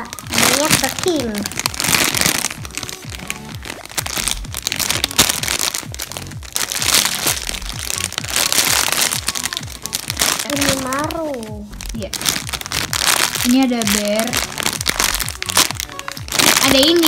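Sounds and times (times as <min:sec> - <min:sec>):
background music with low beat: 0:00.0 - 0:17.0
plastic packaging crinkling: 0:00.0 - 0:17.0.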